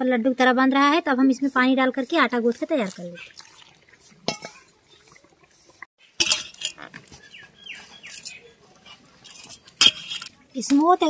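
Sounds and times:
bird chirping: 7.1 - 9.7.

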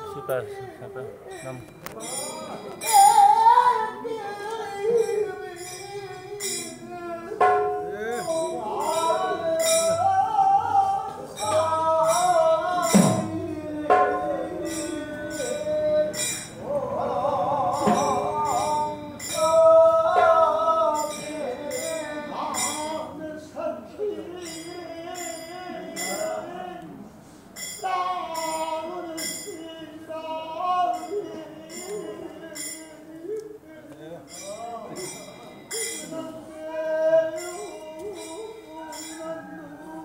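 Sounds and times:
voices singing devotional chant: 0.0 - 40.0
small hand cymbals clashing: 1.3 - 3.5, 4.8 - 10.1, 11.4 - 16.7, 17.7 - 23.1, 24.4 - 26.5, 27.6 - 29.7, 30.8 - 33.1, 34.2 - 36.4, 37.2 - 39.5
barrel drums: 7.4 - 16.8, 17.6 - 21.4.

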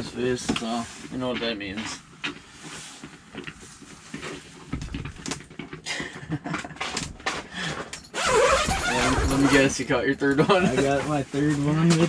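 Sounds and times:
fabric wall rustling: 8.1 - 12.0.

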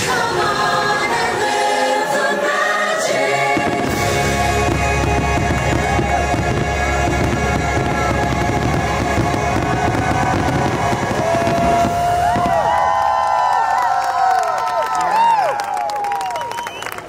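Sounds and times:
loud show music: 0.0 - 12.2
fireworks bursting: 2.8 - 13.2.

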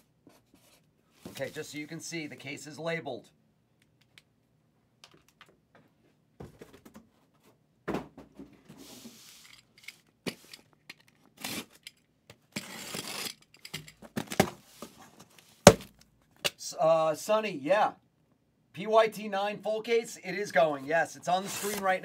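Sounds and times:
cardboard scraping: 21.3 - 22.0.

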